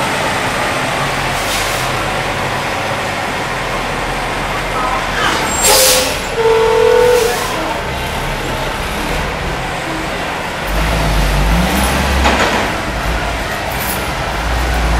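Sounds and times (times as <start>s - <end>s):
truck diesel engine running: 0.0s - 14.9s
steady squeal: 4.8s - 7.8s.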